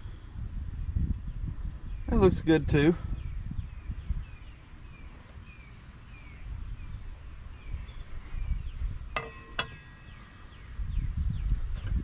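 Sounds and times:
low outdoor rumble: 0:00.0 - 0:12.0
bird chirping: 0:03.1 - 0:12.0.

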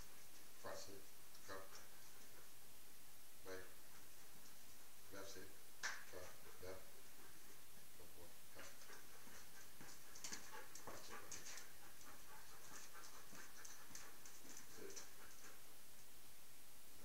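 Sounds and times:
dog panting: 0:06.2 - 0:07.6, 0:08.5 - 0:15.7.

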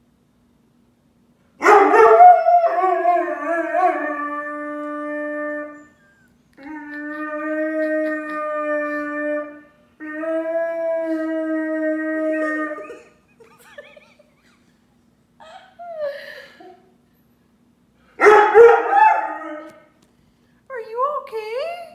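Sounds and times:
dog howling: 0:01.6 - 0:13.1, 0:18.2 - 0:19.9.

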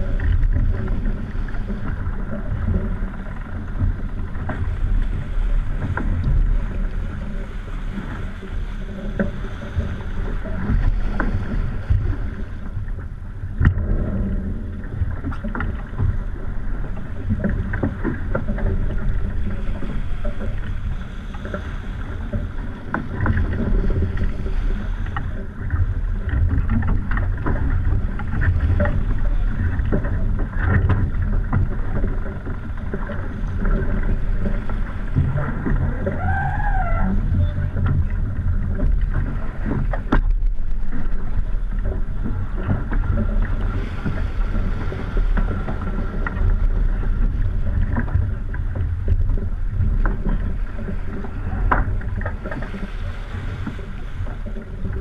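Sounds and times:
wind and water rushing: 0:00.0 - 0:55.0
wavering tone: 0:35.9 - 0:37.8.

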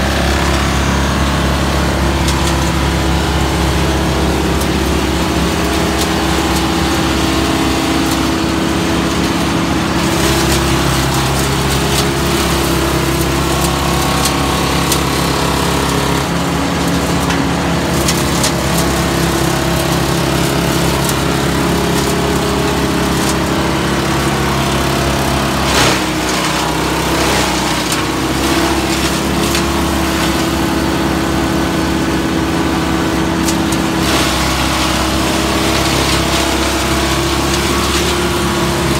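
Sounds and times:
chipper engine running: 0:00.0 - 0:38.9
branches crackling being chipped: 0:18.0 - 0:30.7
sharp crack: 0:25.4 - 0:30.7.

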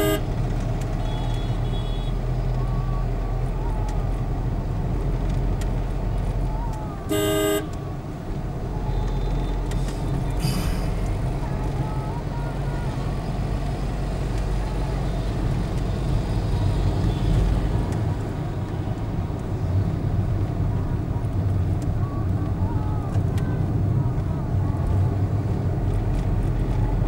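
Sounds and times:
car horn blast: 0:00.0 - 0:00.4, 0:07.1 - 0:07.8
car engine and road rumble: 0:00.0 - 0:27.0.

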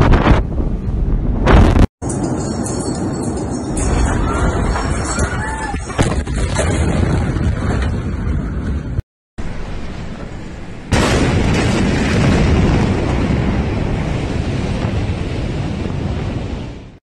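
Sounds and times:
explosion boom: 0:00.0 - 0:01.9, 0:05.8 - 0:17.0.

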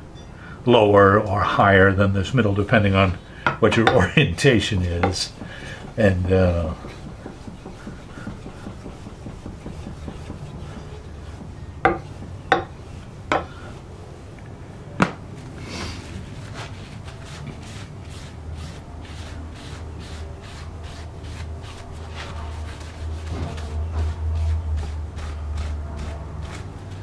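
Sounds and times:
sharp knocks: 0:03.4 - 0:13.5
rag rubbing wet hatchet blade: 0:03.5 - 0:13.7.

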